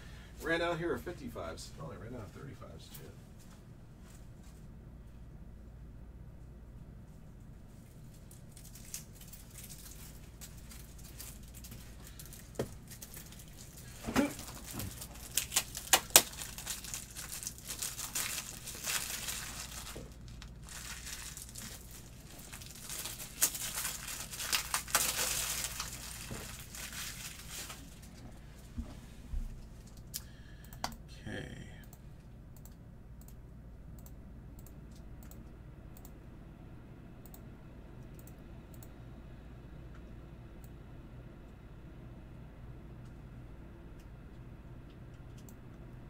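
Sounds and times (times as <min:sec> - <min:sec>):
plastic packaging crinkling: 0:08.1 - 0:28.2.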